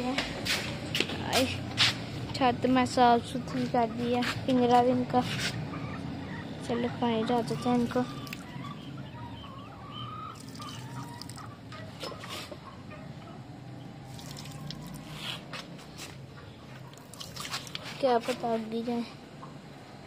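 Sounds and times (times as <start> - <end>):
water dripping: 8.2 - 8.5, 10.4 - 11.5, 14.1 - 15.1, 16.9 - 17.8
water pouring and splashing: 10.4 - 11.5, 14.1 - 15.2, 16.9 - 18.0.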